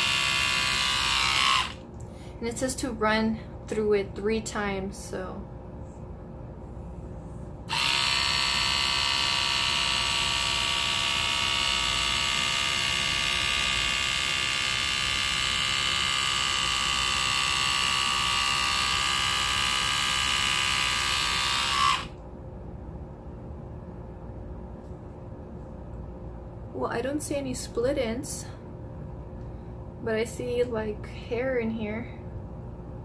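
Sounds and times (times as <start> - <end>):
hair trimmer motor whine: 0.0 - 1.8, 7.7 - 22.2.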